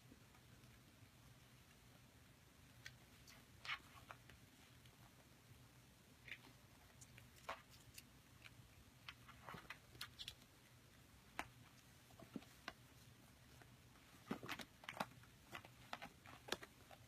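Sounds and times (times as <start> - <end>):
low steady hum: 0.0 - 17.0
kittens clicking and tapping: 13.5 - 17.0.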